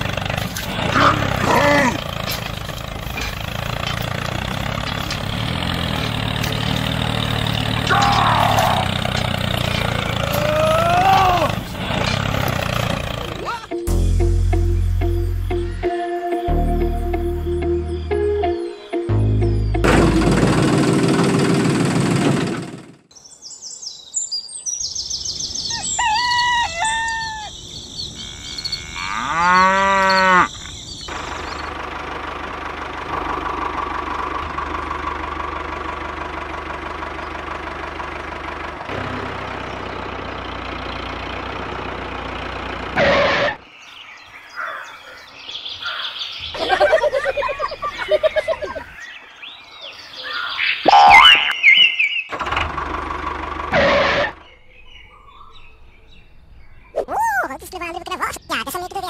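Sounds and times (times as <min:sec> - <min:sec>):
farmyard animal and bird calls: 0:00.0 - 0:13.8, 0:23.1 - 0:34.7, 0:39.5 - 0:52.4, 0:53.4 - 0:59.0
tractor engine drone: 0:00.0 - 0:23.1, 0:25.2 - 0:56.8.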